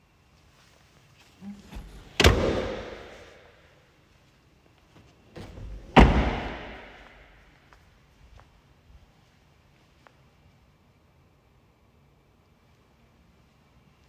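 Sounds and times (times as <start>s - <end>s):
car door slamming: 1.8s - 3.3s, 5.4s - 7.1s.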